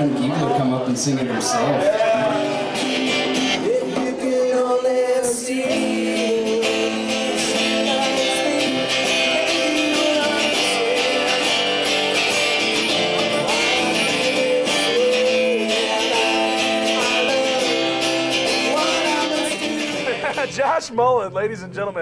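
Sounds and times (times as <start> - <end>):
strummed acoustic guitar: 0.0 - 21.9
man singing into a microphone: 1.3 - 2.9, 3.6 - 11.9, 13.3 - 20.5.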